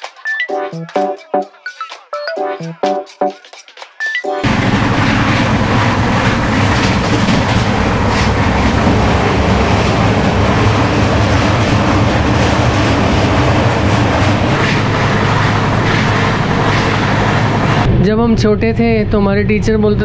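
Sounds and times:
sharp rail clacks: 2.8 - 17.9
train running on rails: 2.8 - 17.9.

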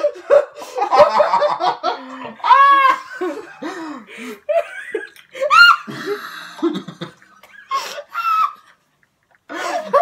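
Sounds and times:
high-pitched shriek of laughter: 5.4 - 5.9.

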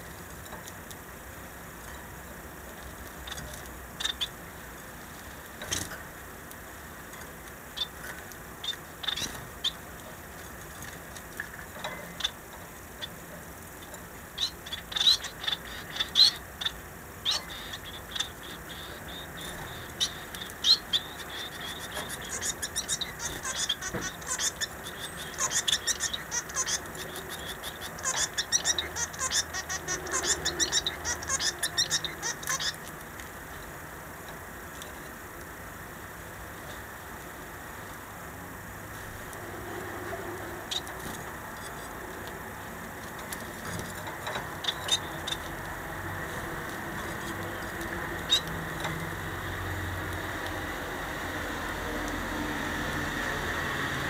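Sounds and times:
finches chirping: 3.2 - 4.6, 7.6 - 10.0, 14.3 - 33.0, 40.1 - 51.8.

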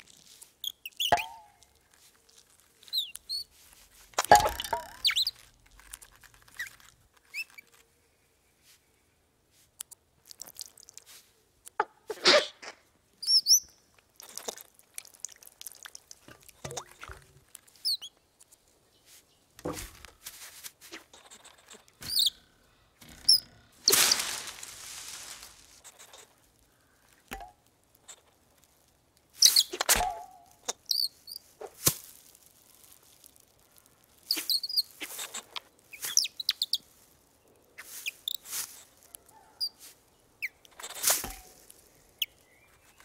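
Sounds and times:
high squeaky chirps: 0.2 - 7.9, 12.1 - 14.5, 17.7 - 18.2, 20.9 - 26.3, 29.4 - 31.8, 34.2 - 36.9
light rustles: 18.4 - 28.8.

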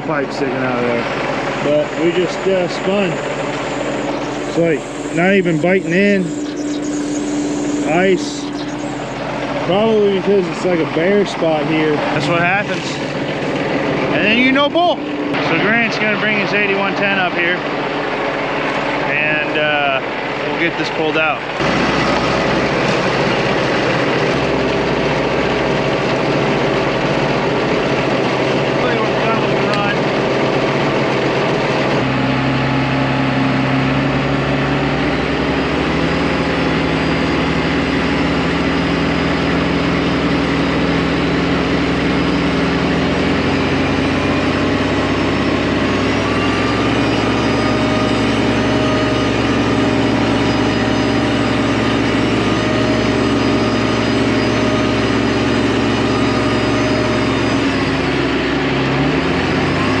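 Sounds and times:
tractor diesel engines under load: 0.0 - 60.0.

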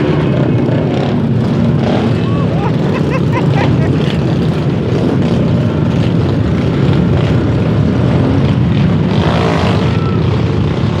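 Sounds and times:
dirt bike engines droning: 0.0 - 11.0.

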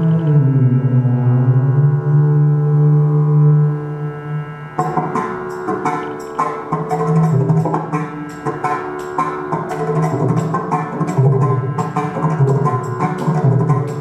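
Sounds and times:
held melodic notes: 0.0 - 14.0
tabla beats: 4.8 - 14.0.

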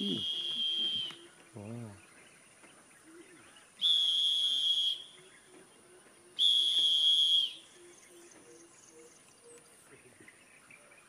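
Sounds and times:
long high whistles: 0.0 - 1.2, 3.8 - 5.1, 6.4 - 7.7.

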